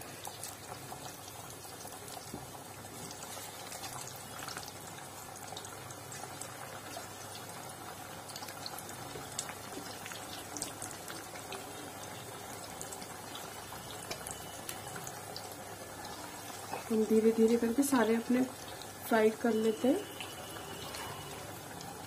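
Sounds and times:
food deep-frying in hot oil: 0.0 - 22.0.

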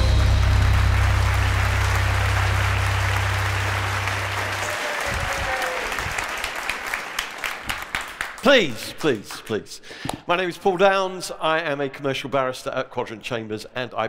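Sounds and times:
low bass note: 0.0 - 4.6
audience applauding: 0.0 - 8.6.

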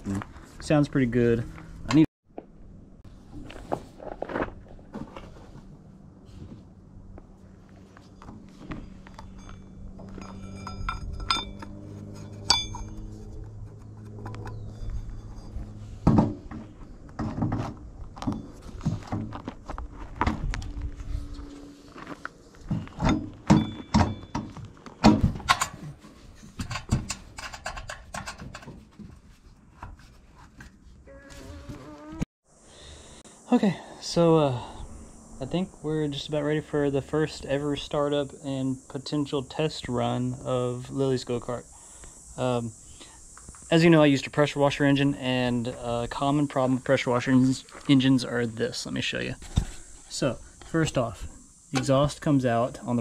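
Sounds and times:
metal knocks and clinks: 8.8 - 13.1, 22.7 - 24.6.

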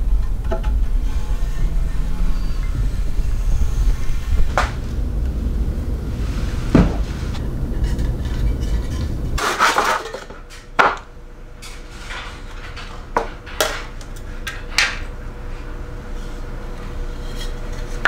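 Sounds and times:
low rumble: 0.0 - 9.4.

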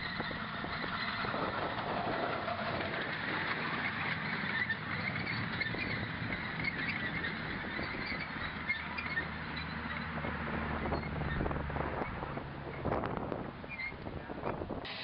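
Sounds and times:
train wheels running on rails: 0.0 - 8.3
high-pitched wheel squeaks: 0.0 - 15.0.

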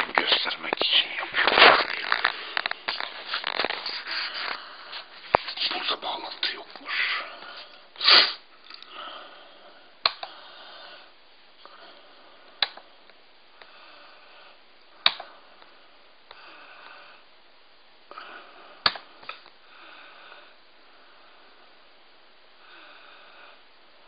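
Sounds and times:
breathing close to microphone: 1.2 - 5.6, 18.1 - 21.8
sharp click: 15.0 - 15.3, 18.8 - 19.5.

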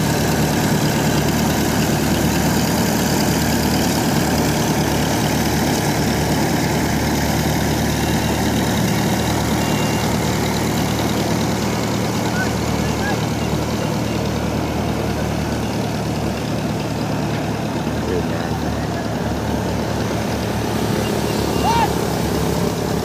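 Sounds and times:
diesel engine running: 0.0 - 23.0.

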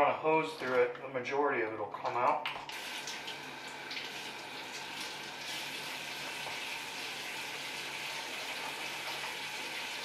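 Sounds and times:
faucet running into a sink: 2.7 - 10.0.

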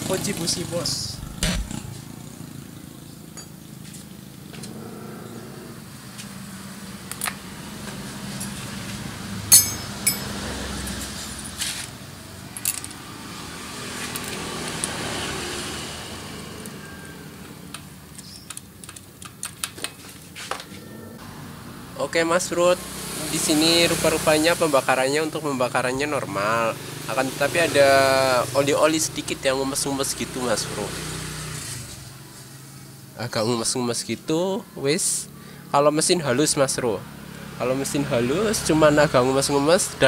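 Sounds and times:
socket wrench clicking and clinking: 9.5 - 10.3.

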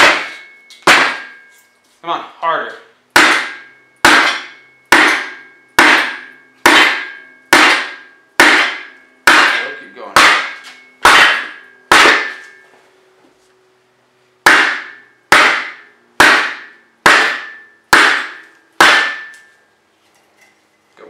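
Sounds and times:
hammer pounding on wood block: 0.0 - 1.4, 3.2 - 12.6, 14.4 - 19.5.

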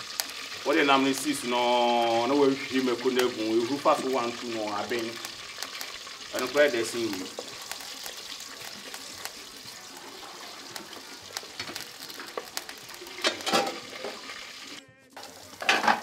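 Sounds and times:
onions sizzling in oil: 0.0 - 16.0
wooden spatula stirring: 4.9 - 14.4.

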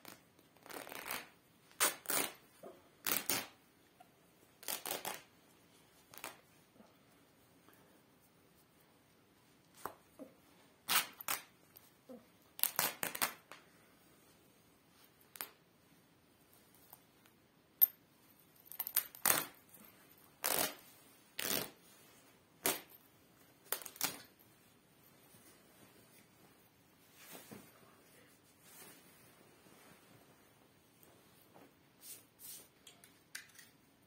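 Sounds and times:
fabric ripping: 0.0 - 2.4, 3.0 - 3.6, 4.6 - 5.3, 6.1 - 6.5, 10.8 - 11.5, 12.6 - 13.5, 19.2 - 19.6, 20.4 - 21.8, 23.7 - 24.3.

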